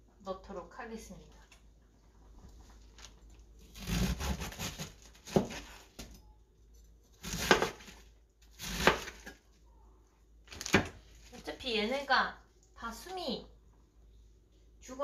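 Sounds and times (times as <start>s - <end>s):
cabbage leaves tearing: 3.7s - 5.8s.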